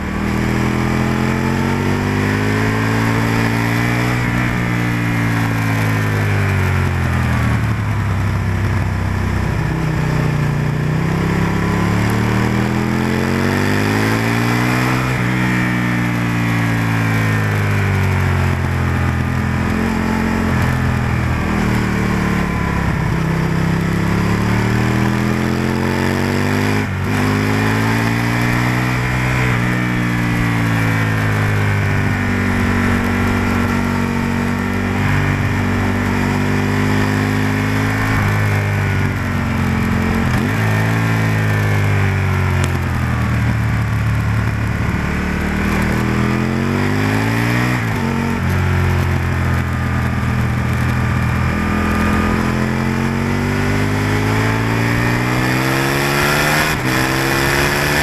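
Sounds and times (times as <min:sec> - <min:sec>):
motorcycle engine revving: 0:00.0 - 0:58.0
steady rushing noise: 0:26.3 - 0:58.0.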